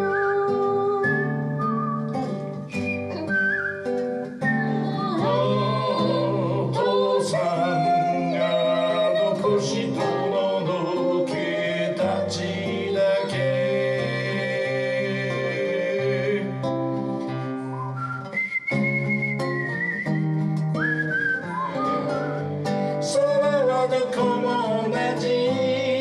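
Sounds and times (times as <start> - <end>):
acoustic guitar: 0.0 - 26.0
man singing: 4.9 - 16.7, 23.0 - 26.0.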